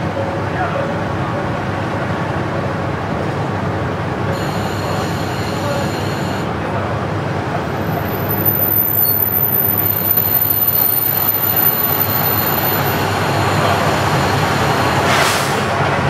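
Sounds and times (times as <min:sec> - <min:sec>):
diesel railcar engine drone: 0:00.0 - 0:16.0
wheels running on rail: 0:00.0 - 0:16.0
brief hiss: 0:15.1 - 0:15.7.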